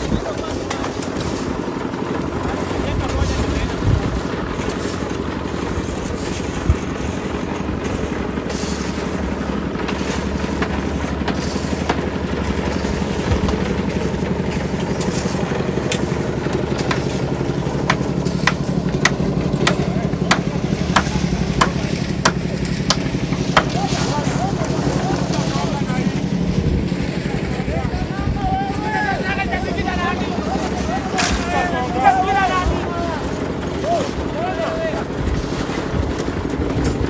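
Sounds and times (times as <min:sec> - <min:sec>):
concrete mixer engine running: 0:00.0 - 0:37.0
sharp knocks: 0:17.8 - 0:23.7.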